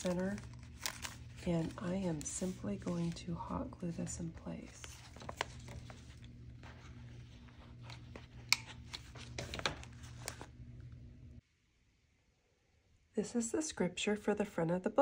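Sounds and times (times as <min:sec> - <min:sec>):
paper pages rustling: 0:00.0 - 0:10.6
steady low hum: 0:00.0 - 0:11.4.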